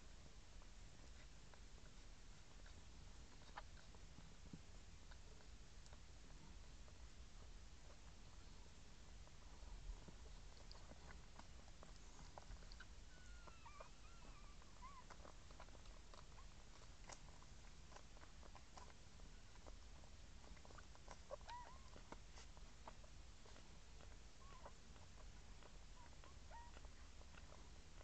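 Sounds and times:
soft clicks of puppies nursing: 0.0s - 28.0s
newborn puppies squeaking: 10.4s - 16.8s, 20.6s - 28.0s.

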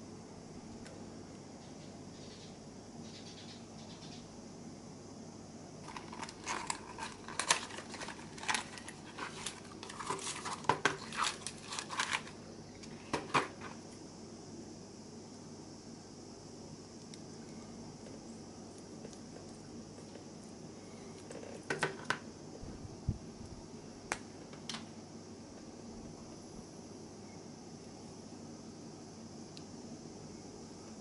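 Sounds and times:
packaging crackling and clicking: 5.8s - 13.5s.

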